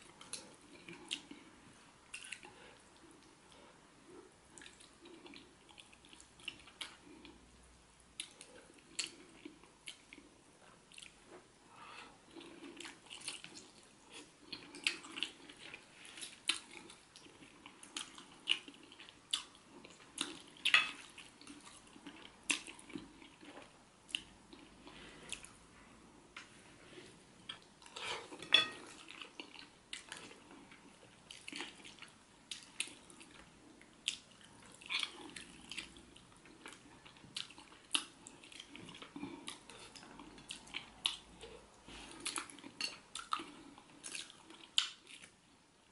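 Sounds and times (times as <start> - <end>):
chewing and mouth noises: 2.1 - 3.6, 12.2 - 25.6, 27.4 - 45.4.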